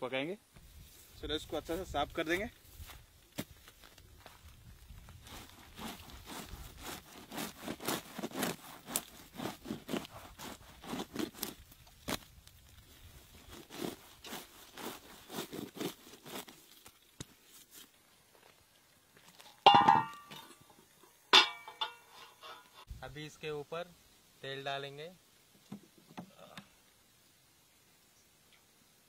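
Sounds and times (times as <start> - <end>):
scraping fish skin: 5.3 - 12.3, 13.3 - 17.0.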